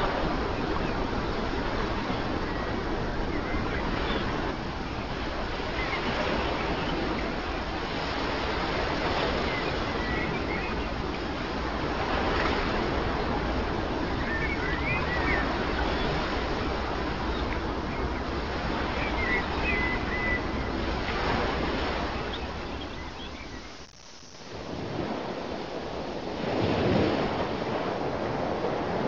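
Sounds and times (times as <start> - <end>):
ocean waves breaking: 0.0 - 29.0.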